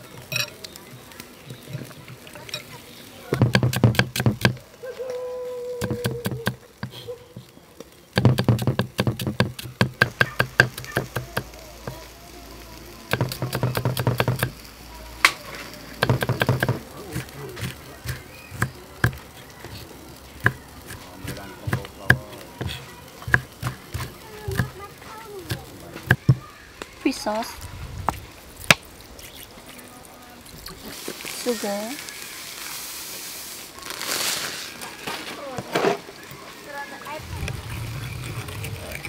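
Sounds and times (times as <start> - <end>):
cleaver chopping on wooden block: 3.4 - 4.6, 8.2 - 11.5, 13.1 - 14.5, 16.0 - 16.8.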